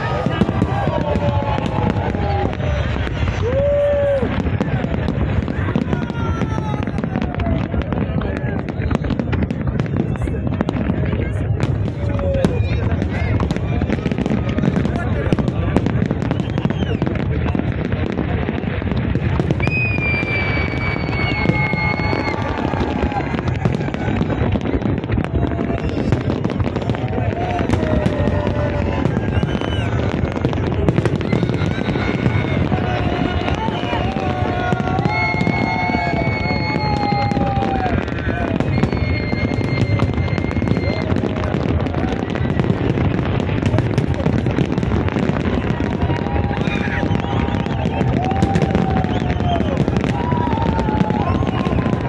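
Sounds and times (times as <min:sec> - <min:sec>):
fireworks crackling and banging: 0:00.0 - 0:52.0
high whistling fireworks: 0:00.0 - 0:52.0
high steady whistle: 0:19.6 - 0:22.5, 0:29.2 - 0:30.0, 0:35.0 - 0:37.7, 0:38.6 - 0:41.2, 0:46.9 - 0:51.9.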